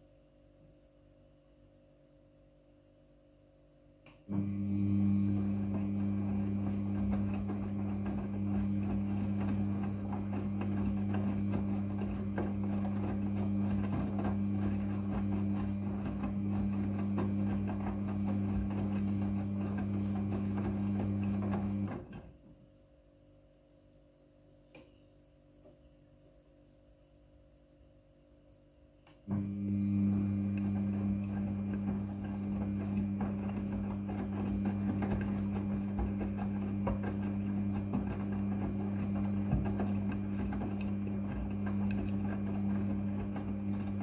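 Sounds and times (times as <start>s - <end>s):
washing machine tumbling: 4.3s - 22.6s, 29.3s - 44.0s.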